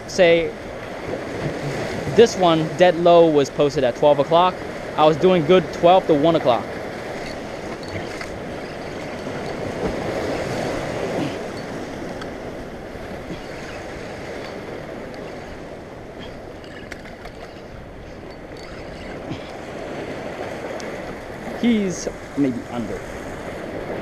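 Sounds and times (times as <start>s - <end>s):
surf breaking over rocks: 0.0s - 16.2s.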